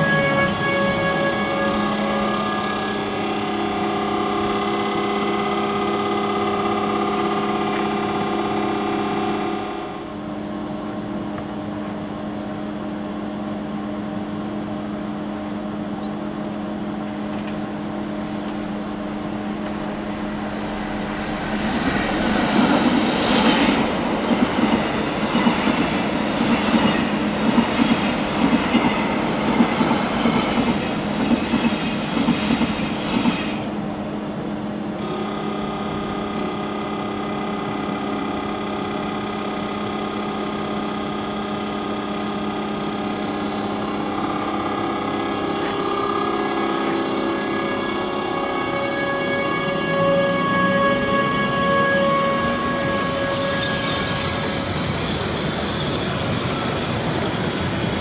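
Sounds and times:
electric locomotive hum: 0.0 - 58.0
train wheels clattering over rails: 21.6 - 33.7.

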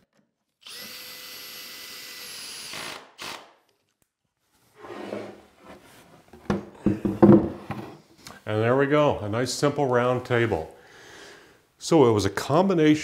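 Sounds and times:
cordless drill driving screw: 0.6 - 3.5.

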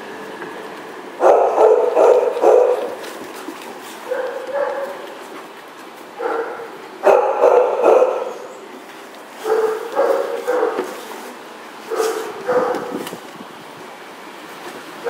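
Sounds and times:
dogs barking and yipping: 1.2 - 5.4, 6.1 - 8.6, 9.2 - 11.2, 11.8 - 13.2.

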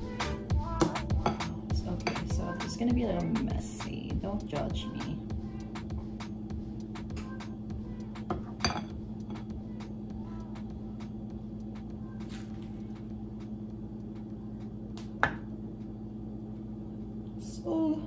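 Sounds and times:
steady low hum: 0.0 - 18.0
spoon clinking against glass bowl: 8.4 - 9.0.

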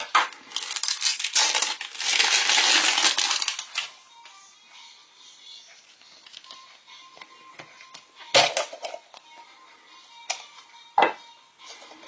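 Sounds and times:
plastic toys rattling in capsule: 0.1 - 3.9.

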